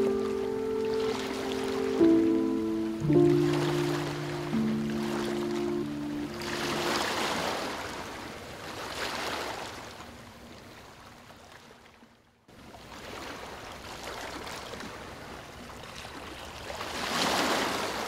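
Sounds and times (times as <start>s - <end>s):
ocean waves washing in: 0.0s - 10.0s.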